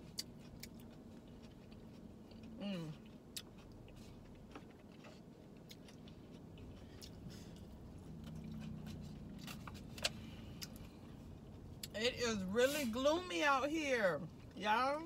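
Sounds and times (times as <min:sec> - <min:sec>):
quiet chewing of food: 0:00.0 - 0:12.0.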